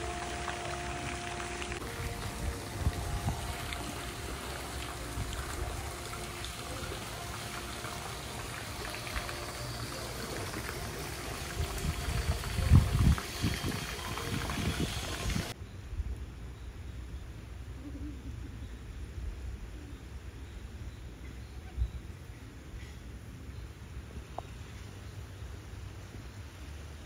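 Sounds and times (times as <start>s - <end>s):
wind and rain: 0.0s - 7.3s, 10.8s - 16.5s
wind buffeting microphone: 1.8s - 4.3s, 11.4s - 15.6s.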